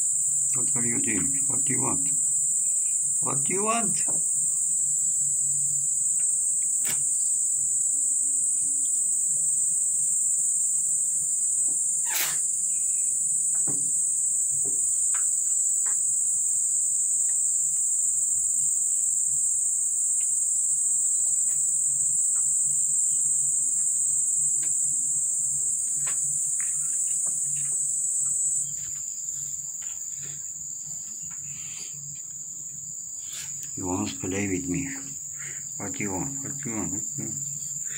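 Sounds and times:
insect shrilling: 0:00.4 - 0:08.0, 0:12.0 - 0:13.2, 0:21.2 - 0:29.0, 0:31.4 - 0:32.1, 0:33.0 - 0:37.9.

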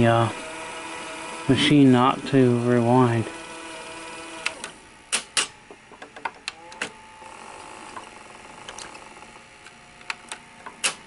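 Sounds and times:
tape deck clicking and clunking: 0:04.4 - 0:07.0, 0:09.6 - 0:11.0.

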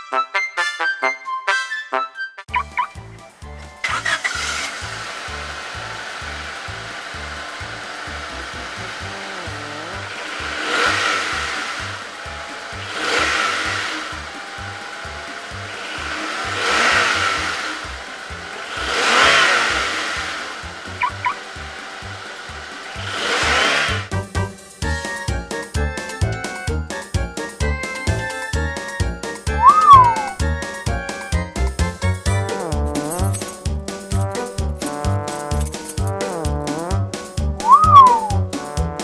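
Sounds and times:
car engine revving: 0:03.7 - 0:24.8, 0:29.3 - 0:39.0
music with steady beat: 0:24.1 - 0:39.0
jingly tune: 0:29.5 - 0:31.3, 0:32.3 - 0:36.3, 0:37.6 - 0:38.5.

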